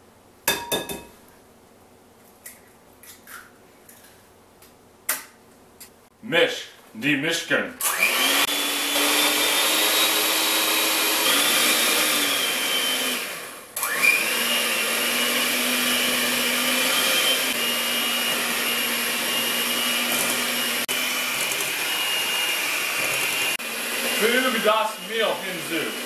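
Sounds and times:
electric hand mixer whining: 0:07.8 - 0:26.0.

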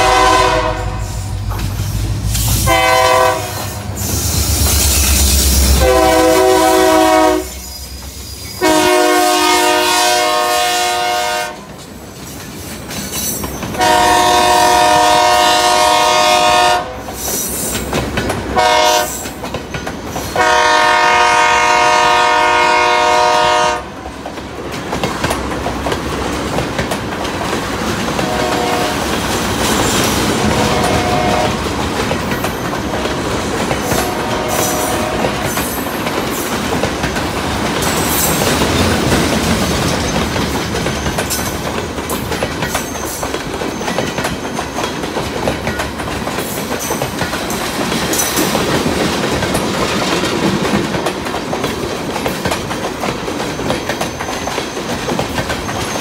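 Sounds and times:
locomotive air horn blasts: 0:00.0 - 0:01.4, 0:02.5 - 0:04.0, 0:05.6 - 0:07.8, 0:08.6 - 0:11.7, 0:13.8 - 0:17.1, 0:18.6 - 0:19.3, 0:20.4 - 0:24.0, 0:28.2 - 0:29.2, 0:30.3 - 0:31.7, 0:33.8 - 0:35.6
train wheels on rails: 0:00.0 - 0:56.0.

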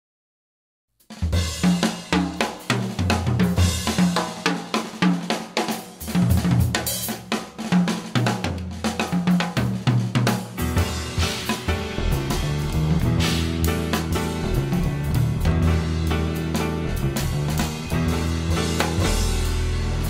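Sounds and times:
band music with drum kit: 0:01.0 - 0:20.0
bass line: 0:10.6 - 0:20.0.

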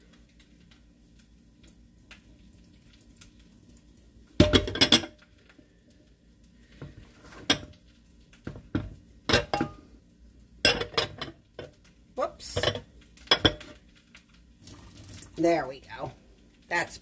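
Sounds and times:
kitchenware clattering: 0:04.4 - 0:05.2, 0:07.2 - 0:07.8, 0:08.5 - 0:09.8, 0:10.6 - 0:11.8, 0:12.5 - 0:13.8.

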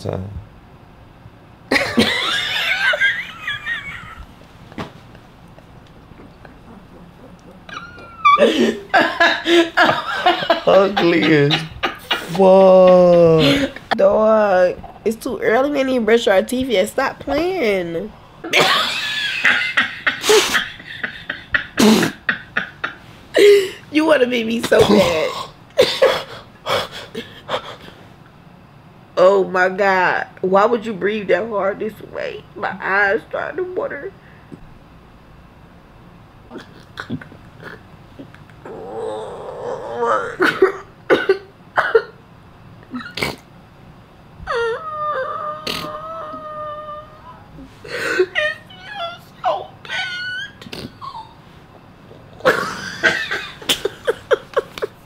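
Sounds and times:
high vocal whine: 0:05.4 - 0:16.4, 0:36.6 - 0:41.0, 0:44.4 - 0:54.9
person coughing: 0:24.7 - 0:26.3, 0:40.5 - 0:42.2
squeaky vocal sounds: 0:38.6 - 0:40.4, 0:44.5 - 0:47.6, 0:48.5 - 0:51.4.

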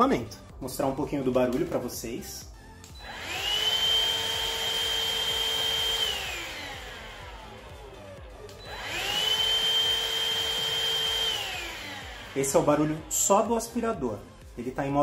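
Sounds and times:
vacuum motor whining: 0:02.9 - 0:13.8.

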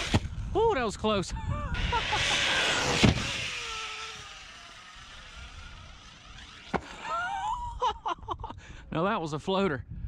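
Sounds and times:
electric motor whining: 0:00.0 - 0:00.5, 0:01.7 - 0:07.6.

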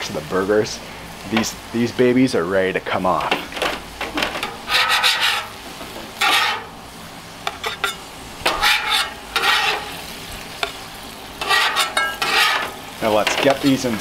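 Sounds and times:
meat sizzling: 0:00.0 - 0:14.0
metal spatula scraping griddle: 0:03.3 - 0:06.8, 0:07.4 - 0:13.9.

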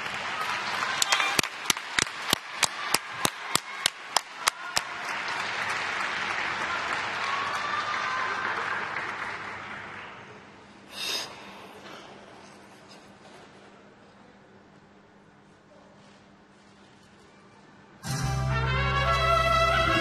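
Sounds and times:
applause and cheering: 0:00.0 - 0:10.6
audience clapping in unison: 0:00.0 - 0:10.6
loud shout from crowd: 0:02.4 - 0:05.4, 0:06.4 - 0:09.0.

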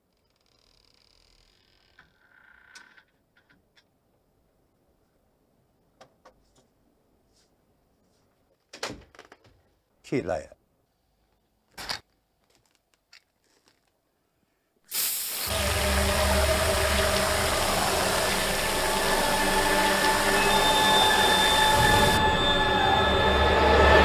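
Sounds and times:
aerosol can spraying hiss: 0:14.9 - 0:22.2.

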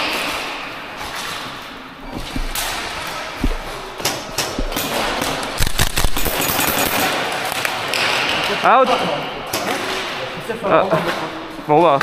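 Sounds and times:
airsoft gun shots: 0:04.3 - 0:07.2.

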